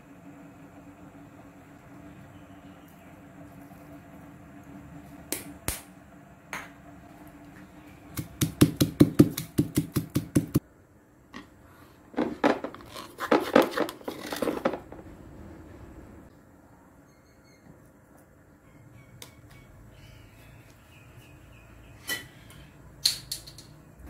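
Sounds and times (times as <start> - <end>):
stone pestle pounding in mortar: 8.2 - 10.6.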